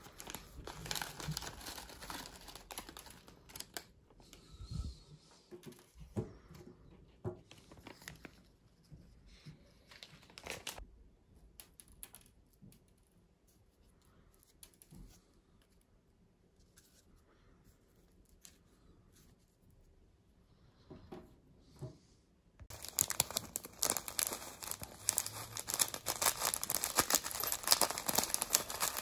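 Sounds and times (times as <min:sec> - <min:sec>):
plastic packet crinkling: 0:00.0 - 0:03.9, 0:22.7 - 0:29.0.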